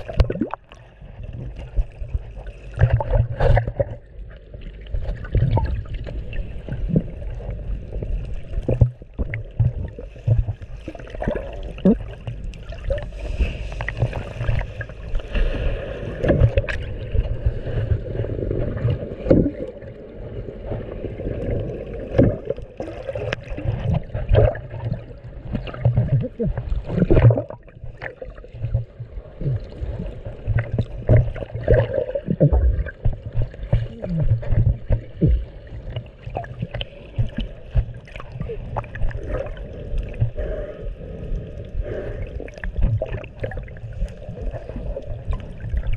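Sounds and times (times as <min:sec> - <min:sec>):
dull knocks underwater: 0:00.0 - 0:00.7, 0:01.3 - 0:04.1, 0:08.6 - 0:13.0, 0:13.8 - 0:19.8, 0:22.0 - 0:29.7, 0:30.4 - 0:40.4, 0:42.6 - 0:43.8
underwater water sloshing: 0:00.0 - 0:45.9.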